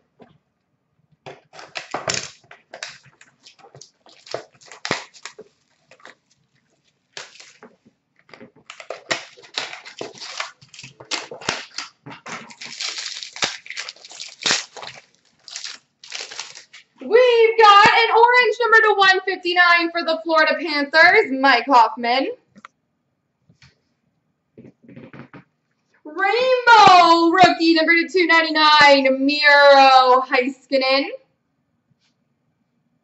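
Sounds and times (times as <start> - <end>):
wrapper crinkling and tearing: 1.3 - 17.0.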